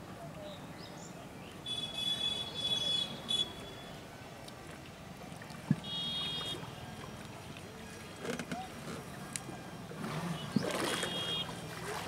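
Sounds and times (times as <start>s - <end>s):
river ambience: 0.0s - 12.0s.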